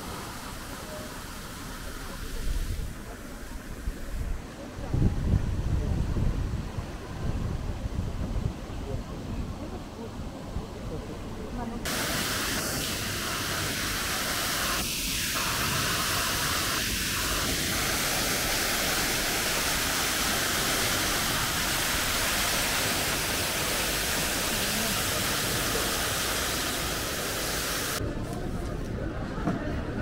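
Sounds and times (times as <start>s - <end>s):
waterfall splashing onto rocks: 11.9s - 28.0s.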